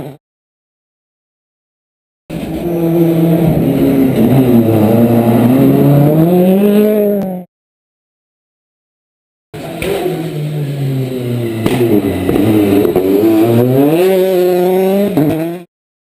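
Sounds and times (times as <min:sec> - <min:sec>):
rally car engine: 0:02.3 - 0:07.5, 0:09.6 - 0:15.7.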